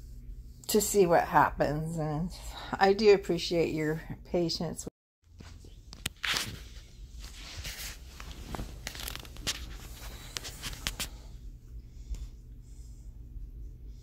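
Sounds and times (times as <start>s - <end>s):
low steady hum: 0.0s - 14.0s
rustling and crinkling: 5.3s - 11.4s.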